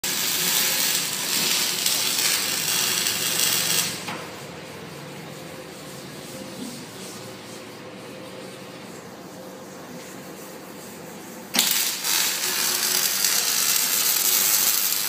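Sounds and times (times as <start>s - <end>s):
welding arc crackling: 0.0s - 4.1s, 11.5s - 15.0s
welding machine hum: 0.0s - 5.6s, 11.4s - 15.0s.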